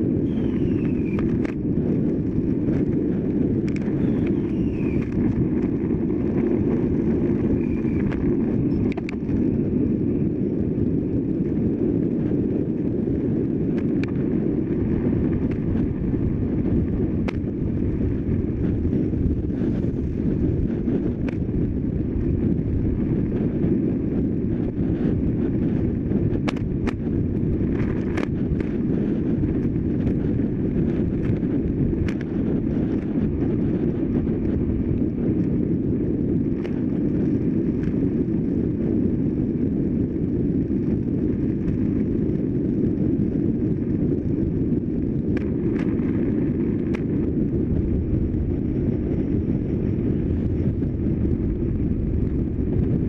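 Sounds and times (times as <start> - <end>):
tyre and road noise: 0.0 - 53.0
wind rumble on microphone: 0.0 - 53.0.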